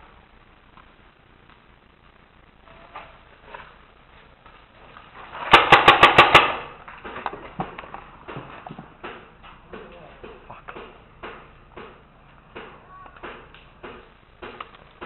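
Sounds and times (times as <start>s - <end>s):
paintball marker firing: 5.5s - 8.4s.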